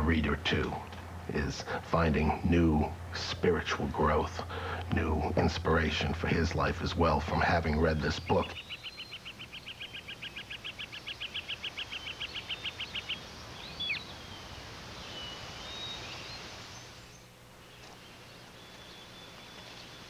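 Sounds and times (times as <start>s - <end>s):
steady outdoor hiss: 0.0s - 20.0s
bird trilling: 7.8s - 20.0s.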